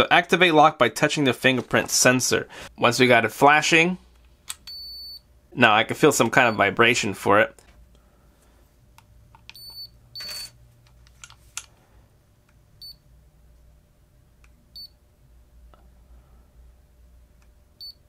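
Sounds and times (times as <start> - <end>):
short high electronic beeps: 9.6 - 10.6.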